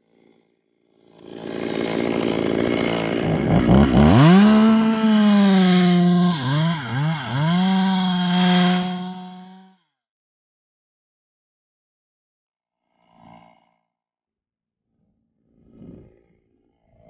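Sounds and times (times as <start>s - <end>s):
chainsaw revving high-pitched: 1.2s - 9.7s.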